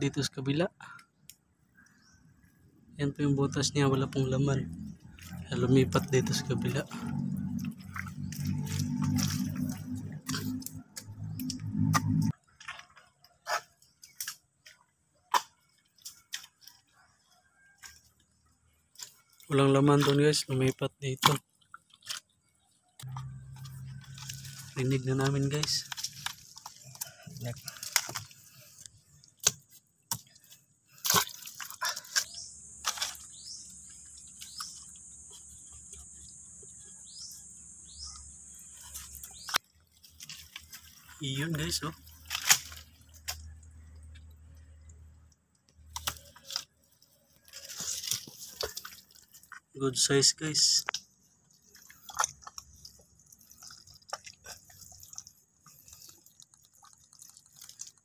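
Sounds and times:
wet squelches of soft mud: 4.7 - 36.2, 38.8 - 50.2, 50.8 - 58.0
stick striking wet mud: 29.3 - 33.6
high insect hum: 31.4 - 49.4.

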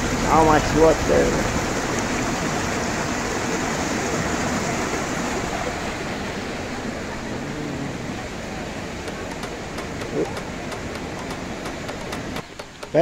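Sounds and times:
river water rushing over boulders: 0.0 - 13.0.

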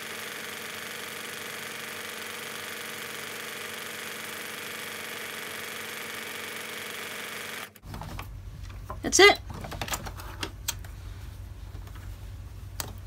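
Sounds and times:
electric sewing machine running: 0.0 - 7.8.

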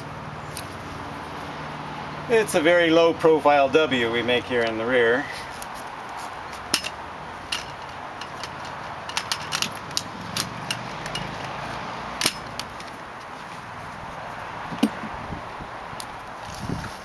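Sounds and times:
strap buckles clicking and rattling: 5.3 - 13.4, 14.7 - 15.2.

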